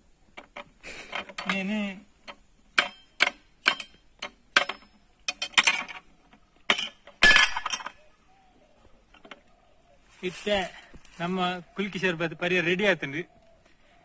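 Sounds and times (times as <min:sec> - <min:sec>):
glass clinking against steel: 0:06.7 - 0:08.0.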